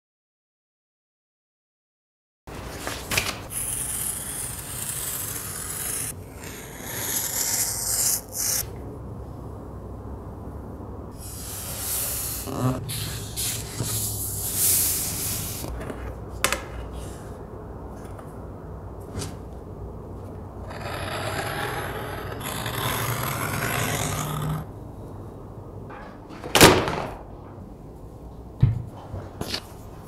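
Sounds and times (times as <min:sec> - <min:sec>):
craft knife cutting cardboard: 0:03.5 - 0:08.6, 0:20.7 - 0:24.7.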